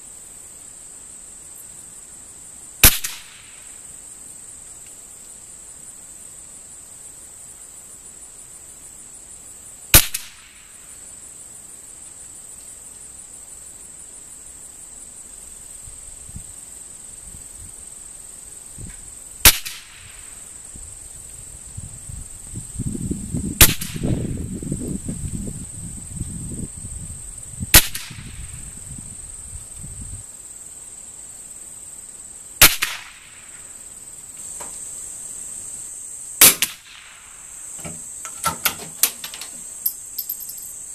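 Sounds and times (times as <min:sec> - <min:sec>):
high insect buzz: 0:00.0 - 0:40.9
rifle shots: 0:36.4 - 0:37.1.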